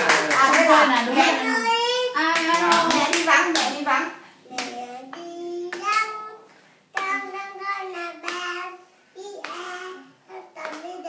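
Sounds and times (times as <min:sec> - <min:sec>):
toddler singing: 0:01.4 - 0:02.2, 0:04.5 - 0:11.0.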